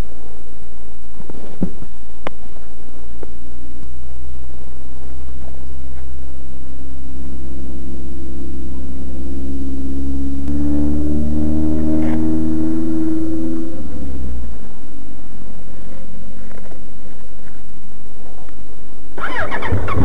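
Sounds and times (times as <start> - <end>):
constant low rumble: 0.0 - 20.0.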